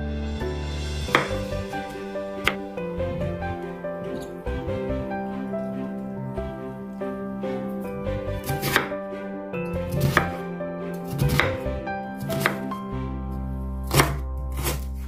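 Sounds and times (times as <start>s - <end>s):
knife slicing vegetables: 8.4s - 8.9s, 9.9s - 10.4s, 11.1s - 11.6s, 12.2s - 12.7s, 13.9s - 15.0s.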